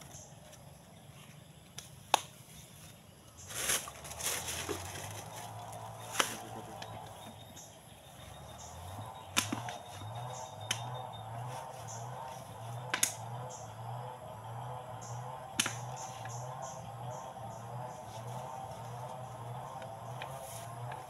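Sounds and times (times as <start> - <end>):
leaves rustling: 2.3 - 7.2
twigs snapping: 3.5 - 7.0, 9.3 - 9.8, 12.9 - 13.2, 15.6 - 15.9.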